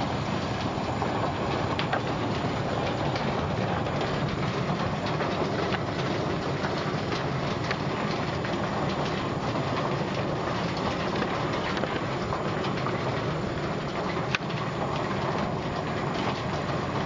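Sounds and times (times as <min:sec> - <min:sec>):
low machine rumble: 0:00.0 - 0:17.0.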